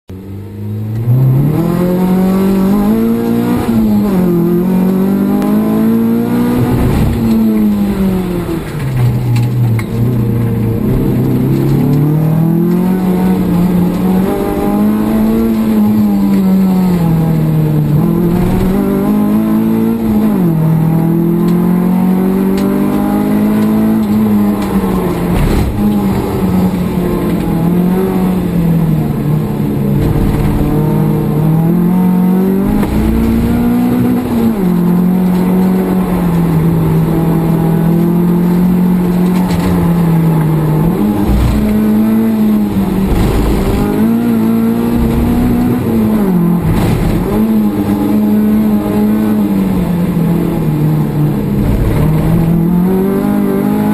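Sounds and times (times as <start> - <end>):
race car engine revving: 0.1 - 53.9.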